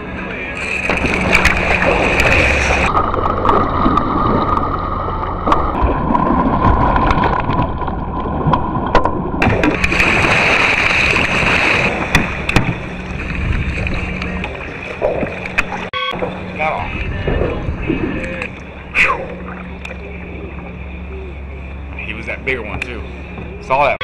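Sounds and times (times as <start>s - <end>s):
water sloshing against hull: 0.0s - 24.0s
paddle splashing through water: 0.6s - 20.7s
wind on microphone: 11.1s - 15.8s, 16.5s - 20.6s.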